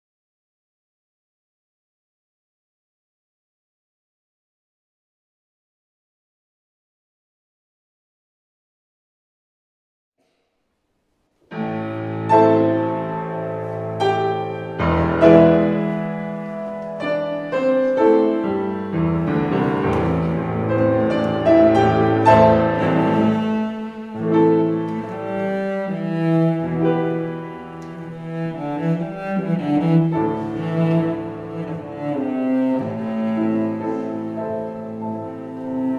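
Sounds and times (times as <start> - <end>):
grand piano: 11.4 - 35.9
cello: 11.5 - 35.9.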